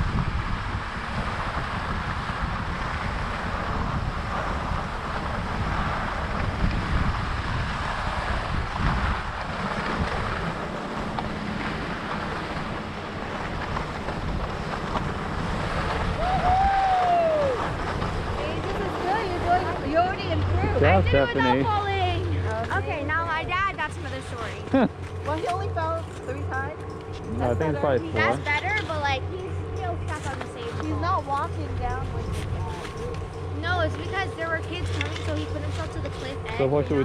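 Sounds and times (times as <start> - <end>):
wind buffeting microphone: 0.0 - 37.0
skis scraping over snow: 0.7 - 21.8.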